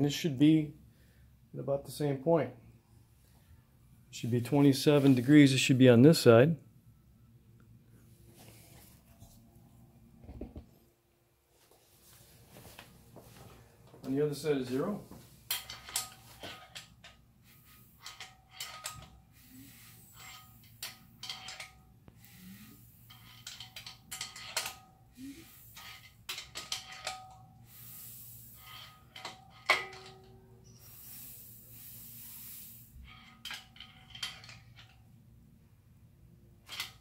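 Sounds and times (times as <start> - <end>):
faint hiss of compression: 27.6 - 29.1, 30.6 - 33.7.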